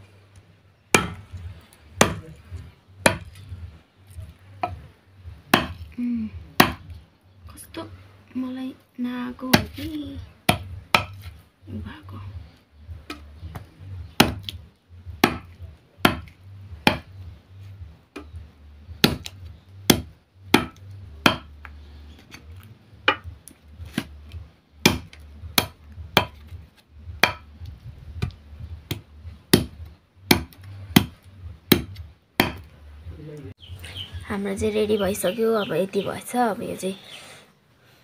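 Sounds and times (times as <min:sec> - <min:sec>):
knife chopping on wooden block: 0:03.0 - 0:03.3, 0:05.5 - 0:05.8, 0:10.5 - 0:11.3, 0:13.1 - 0:14.5, 0:15.2 - 0:16.3, 0:16.9 - 0:17.1, 0:19.9 - 0:21.5, 0:24.8 - 0:26.5, 0:27.2 - 0:27.5, 0:28.2 - 0:32.7.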